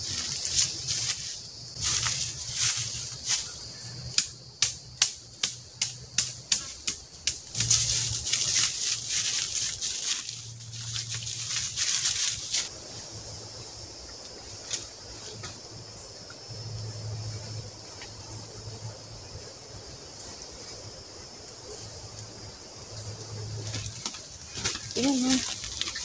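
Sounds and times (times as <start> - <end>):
footsteps crunching dry leaves: 0.0 - 3.8, 7.4 - 12.8, 23.6 - 26.0
leaves rustling and shuffling: 0.0 - 4.0, 5.8 - 16.2, 20.1 - 26.0.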